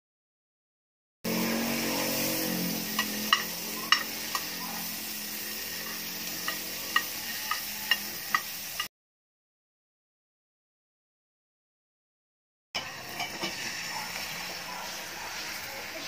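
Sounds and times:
butter sizzling in a frying pan: 0:01.3 - 0:08.9, 0:12.8 - 0:16.0
metal spoon scraping a pan: 0:01.3 - 0:08.9, 0:12.8 - 0:16.0.

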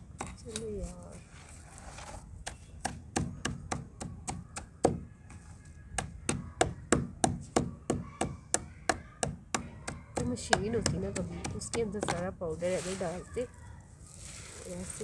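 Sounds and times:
stone pounding brick on concrete: 0:02.4 - 0:05.0, 0:06.0 - 0:12.4.

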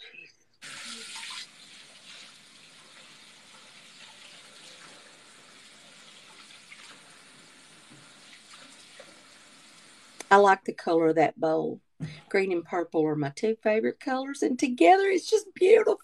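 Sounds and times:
water trickling in sink: 0:00.6 - 0:10.4.

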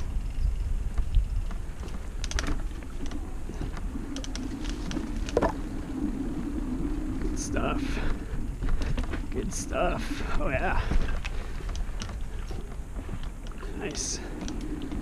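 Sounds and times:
bike clicks and rattles: 0:00.0 - 0:05.6, 0:10.2 - 0:15.0
mountain bike rolling on dirt: 0:00.0 - 0:15.0
steady low hum: 0:00.0 - 0:15.0.

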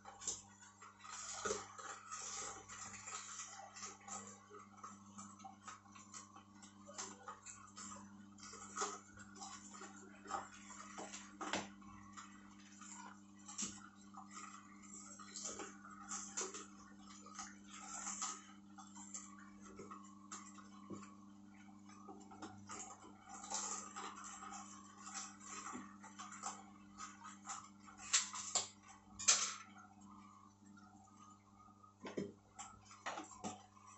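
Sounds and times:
juicer motor hum: 0:00.0 - 0:33.9
celery snapping and crackling: 0:28.0 - 0:29.6.

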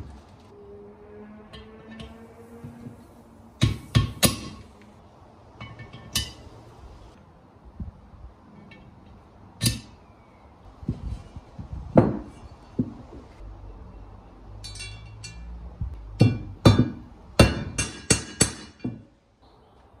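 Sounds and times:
metallic clinks and taps: 0:14.6 - 0:15.5.

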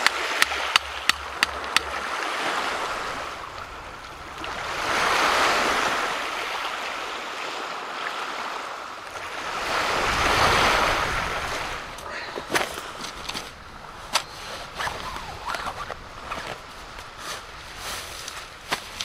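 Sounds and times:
lake waves washing in: 0:00.0 - 0:19.0.

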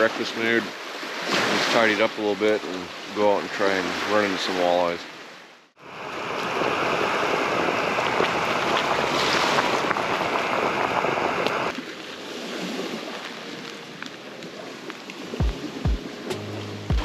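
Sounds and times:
water boiling with crackling bubbles: 0:06.1 - 0:11.8.

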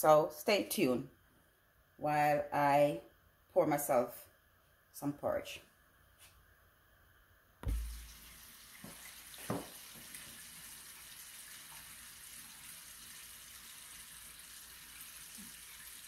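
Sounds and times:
heavy low thump: 0:07.6 - 0:08.1.

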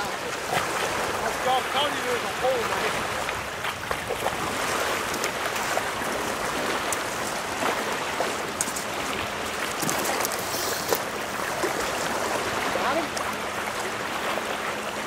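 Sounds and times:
small waves lapping: 0:00.0 - 0:15.0.

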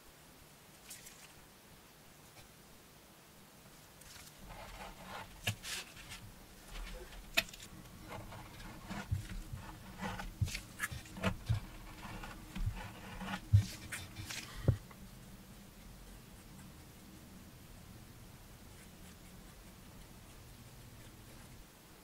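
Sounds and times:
rustling and scraping: 0:04.0 - 0:14.9.

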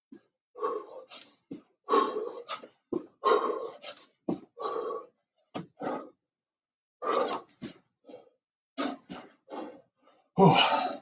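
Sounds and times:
man breathing hard: 0:00.5 - 0:06.2.

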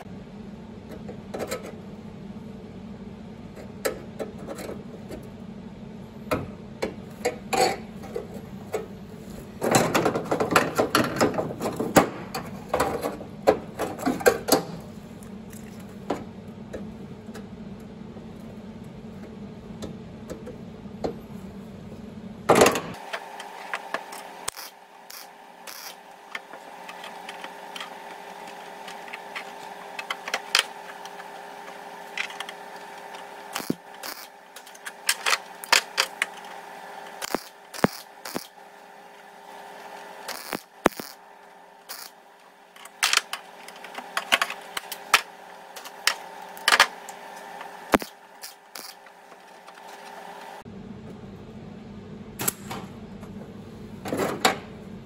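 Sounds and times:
higher steady hum: 0:00.0 - 0:55.0
steady hum: 0:00.0 - 0:55.0
rapid crackling clicks: 0:32.2 - 0:36.4, 0:37.2 - 0:38.6, 0:40.3 - 0:41.2.

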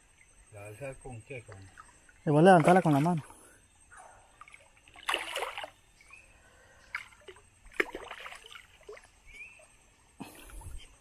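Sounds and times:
fish splashing at surface: 0:04.4 - 0:05.8.

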